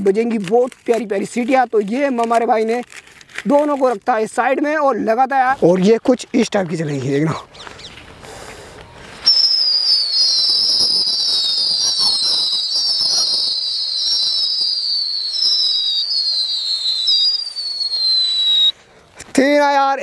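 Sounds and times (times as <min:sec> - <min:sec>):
whistling firecrackers: 0:07.6 - 0:18.9.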